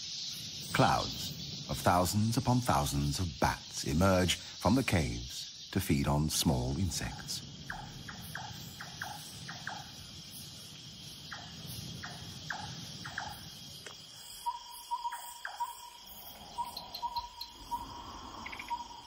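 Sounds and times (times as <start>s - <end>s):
insects droning: 0.0s - 19.0s
short piping calls: 14.4s - 19.0s.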